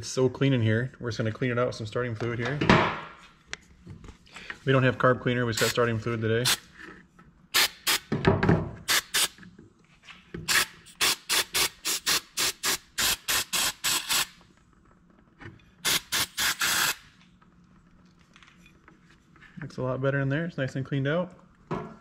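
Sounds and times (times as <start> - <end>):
aerosol can spraying bursts: 7.6 - 8.1, 8.9 - 9.4, 10.5 - 14.4, 15.8 - 17.1.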